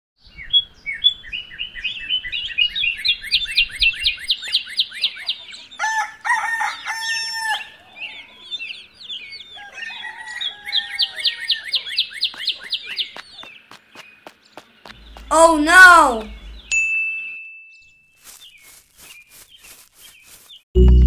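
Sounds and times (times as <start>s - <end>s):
small birds chirping: 0.2s - 5.9s, 6.6s - 16.8s, 17.7s - 20.7s
rooster crowing: 5.8s - 8.6s, 9.4s - 11.8s.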